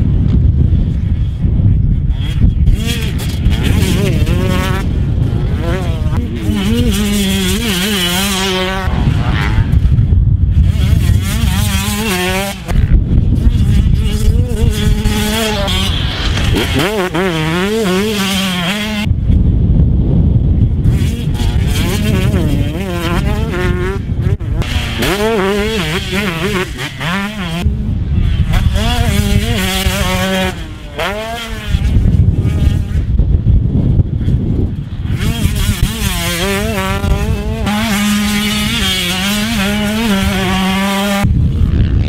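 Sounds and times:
two-stroke motorcycle engine revving: 2.2s - 19.1s, 20.8s - 33.2s, 34.8s - 42.0s.

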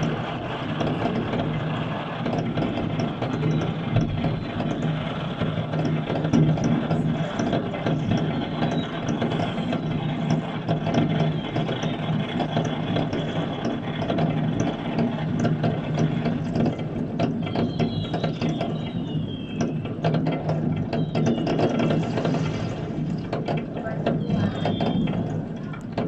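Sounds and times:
whistling firework: 3.0s - 5.5s, 8.0s - 13.7s, 17.4s - 23.2s, 24.2s - 25.4s
firecrackers crackling: 17.6s - 23.4s.

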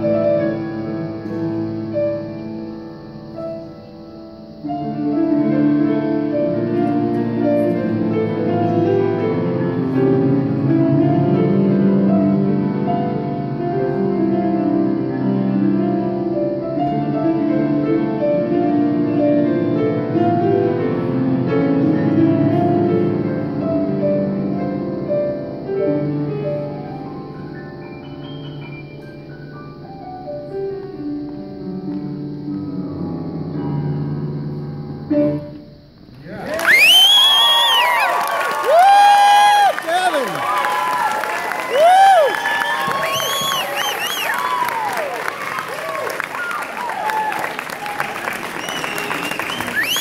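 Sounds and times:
solo piano piece: 0.0s - 50.0s.

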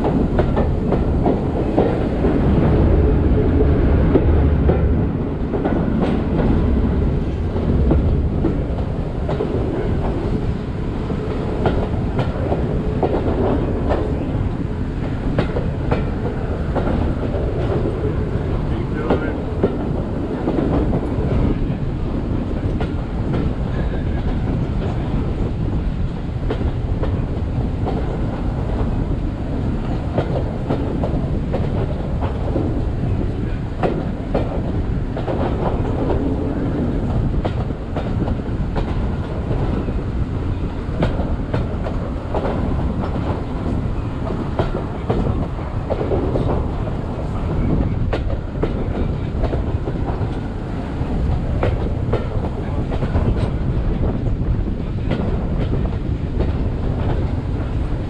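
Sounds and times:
railway carriage rumble: 0.0s - 58.0s
wheels clacking over rail joints: 29.8s - 57.7s.

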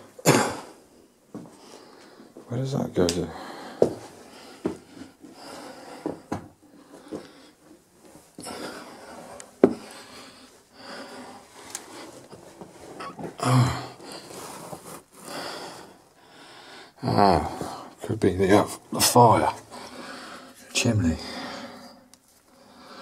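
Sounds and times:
footsteps and handling knocks: 1.3s - 1.6s, 2.3s - 5.4s, 6.0s - 8.5s, 9.2s - 9.9s
breathing: 1.4s - 2.5s, 3.3s - 7.8s, 8.4s - 12.3s, 15.2s - 18.0s, 19.7s - 23.0s
rustling: 14.0s - 15.3s.

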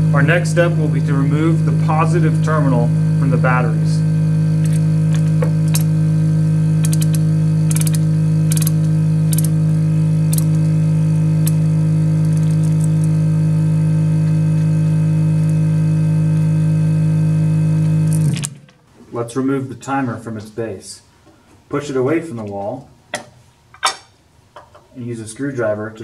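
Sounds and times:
loud low hum: 0.0s - 19.8s
ratcheting wrench clicking: 6.8s - 9.5s.

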